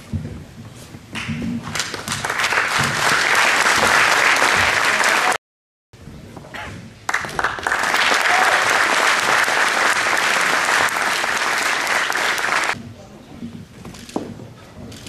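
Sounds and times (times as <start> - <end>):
audience applauding: 1.6 - 5.4, 7.1 - 12.8.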